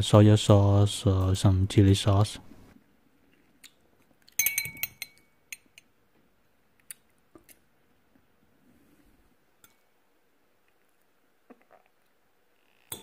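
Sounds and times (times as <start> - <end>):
fork clinking on ceramic plate: 4.4 - 5.8.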